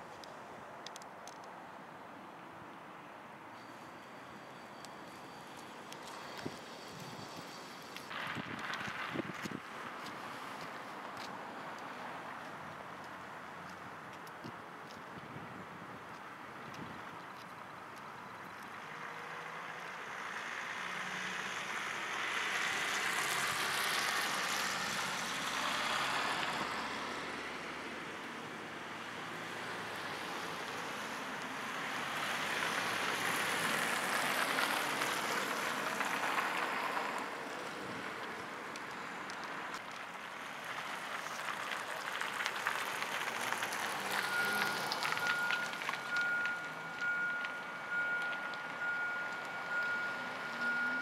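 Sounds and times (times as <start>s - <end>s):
street traffic: 0.0s - 51.0s
steady high beep: 44.3s - 51.0s.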